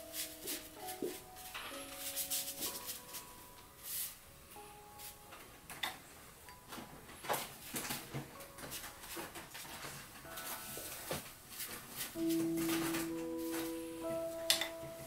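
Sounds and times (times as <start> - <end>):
ink brush scratching on paper: 0.0 - 4.2
soft background music: 0.0 - 15.0.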